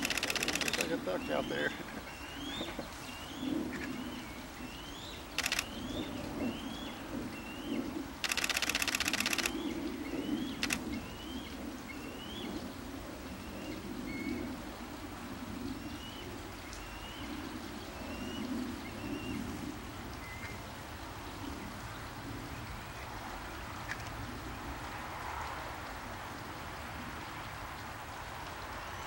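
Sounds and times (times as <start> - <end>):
camera shutter clicks: 0.0 - 1.0, 5.4 - 5.8, 8.2 - 9.7, 10.5 - 10.8
bird chirping: 0.0 - 12.5.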